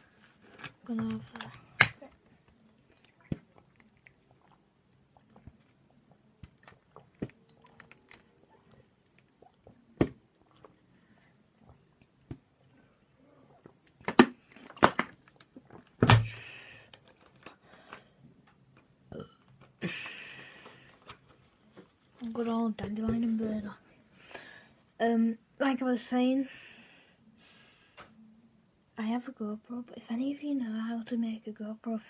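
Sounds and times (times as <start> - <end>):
person swallowing: 19.1 - 19.6
breathy exhale: 26.5 - 28.1.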